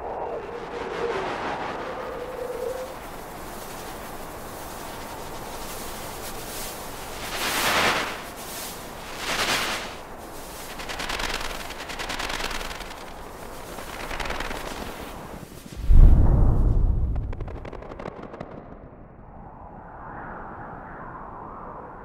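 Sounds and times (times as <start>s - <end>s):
rushes of hissing noise: 0.0s - 17.7s
steady noise bed: 0.0s - 20.2s
loud deep boom: 15.8s - 17.7s.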